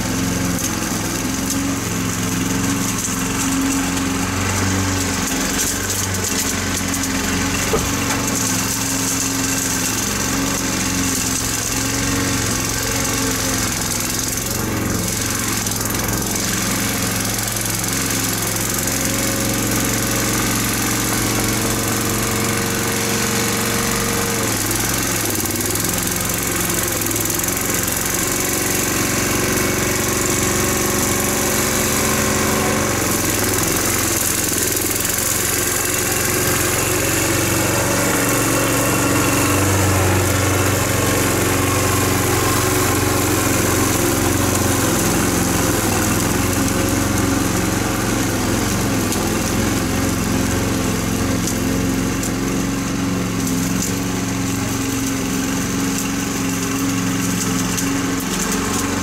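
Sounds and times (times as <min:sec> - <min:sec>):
lawn mower engine running: 0:00.0 - 0:59.0.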